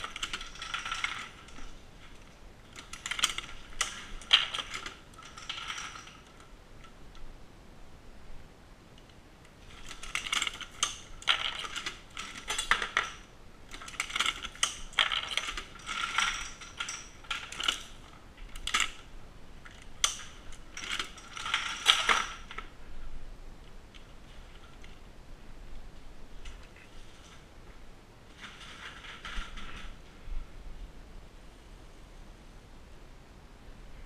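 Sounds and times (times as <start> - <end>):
reloading press clicking and clattering: 0.0 - 6.5, 9.7 - 19.1, 19.7 - 22.6.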